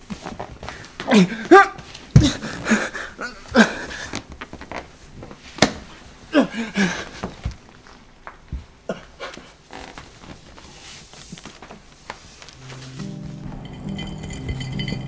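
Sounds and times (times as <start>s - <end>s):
man groaning: 1.0s - 3.9s, 6.3s - 7.1s.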